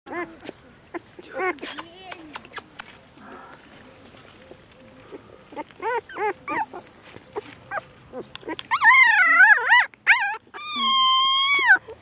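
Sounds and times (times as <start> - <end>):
puppies whining: 0.1 - 1.6, 4.5 - 12.0.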